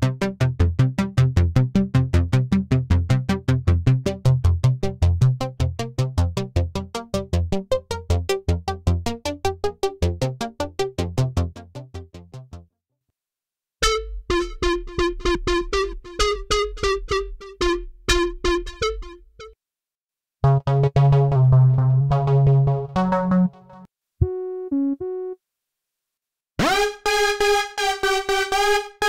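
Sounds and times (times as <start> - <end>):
staccato synth bass notes: 20.4 - 25.3, 26.6 - 29.0.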